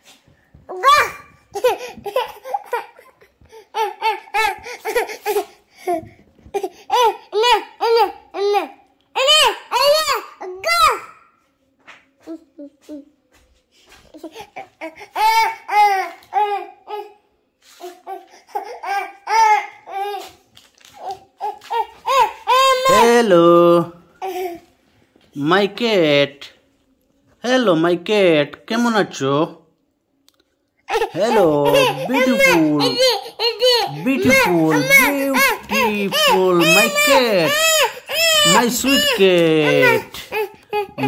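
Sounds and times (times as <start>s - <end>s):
toddler laughing: 0.8s - 8.6s, 30.9s - 41.0s
child laughing: 30.9s - 37.6s.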